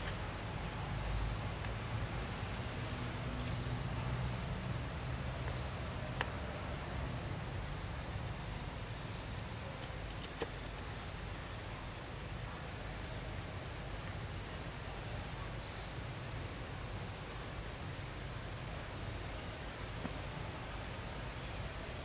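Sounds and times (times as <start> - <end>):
insects trilling: 0.0 - 16.5.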